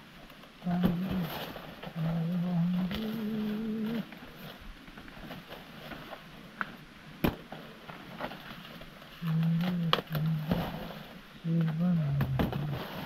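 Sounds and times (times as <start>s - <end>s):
dry maize plants rustling: 0.0s - 13.0s
cobs snapping off stalks: 9.2s - 10.8s.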